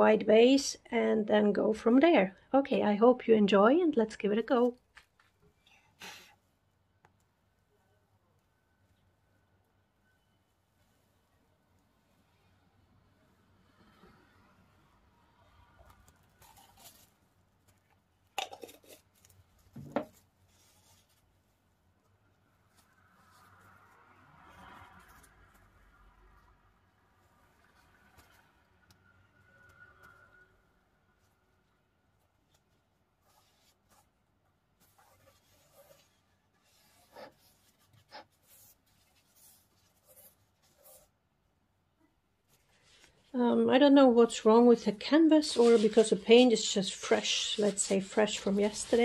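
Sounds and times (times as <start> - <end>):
soft rustle: 15.5 - 28.9, 31.1 - 41.3, 42.4 - 43.4, 45.0 - 49.0
paint rubbing on canvas: 33.2 - 34.2, 34.8 - 41.2, 45.4 - 49.0.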